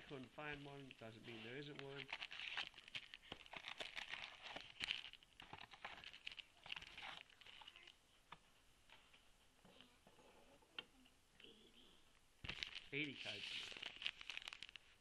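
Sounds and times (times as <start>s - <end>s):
foil card packs crinkling: 0.0s - 8.0s, 12.4s - 15.0s.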